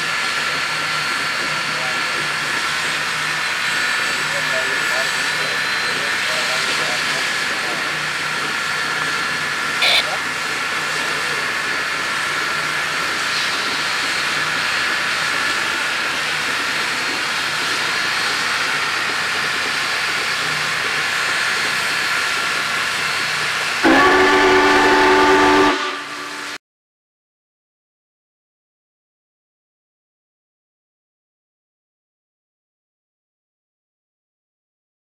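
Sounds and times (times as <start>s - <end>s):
steam locomotive hissing: 0.0s - 26.6s
steam whistle blast: 9.8s - 10.2s, 23.8s - 26.6s.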